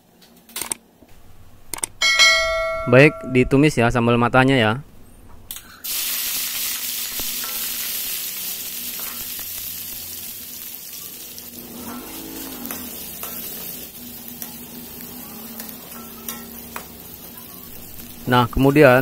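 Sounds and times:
food sizzling in hot oil: 5.8s - 19.0s.

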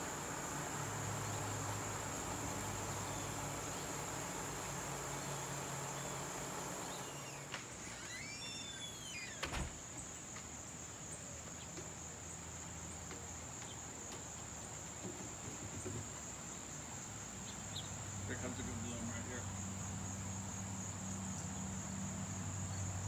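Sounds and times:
crickets trilling: 0.0s - 23.0s
short arching chirps: 5.5s - 9.8s.

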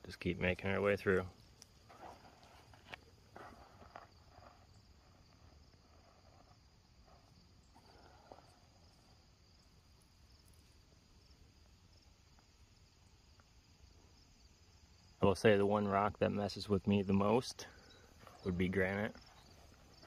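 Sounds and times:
soft crunches: 1.5s - 8.6s
high-pitched insect chirping: 3.6s - 15.2s.

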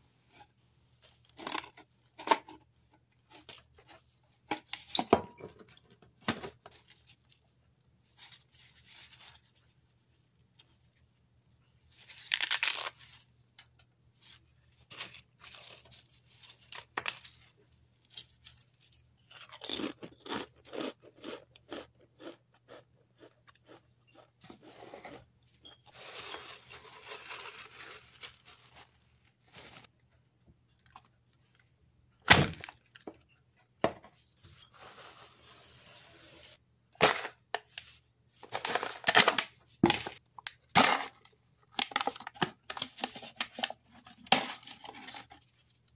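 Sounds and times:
potato chip crunching: 19.3s - 24.3s
paper towel rustling: 25.9s - 29.9s.

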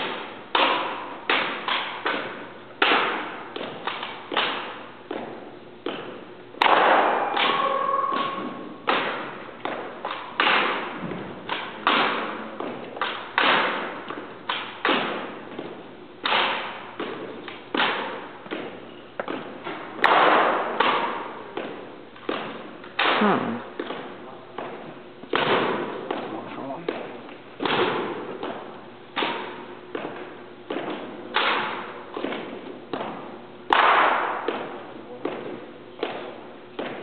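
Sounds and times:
rifle butts striking floor: 6.6s - 13.9s, 20.0s - 21.7s.

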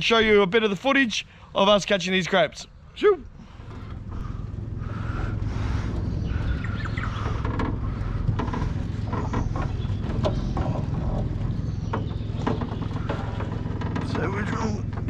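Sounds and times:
birds chirping: 0.0s - 15.0s
outboard motor rumble: 2.7s - 15.0s
sharp knocks and clicks: 3.7s - 15.0s.

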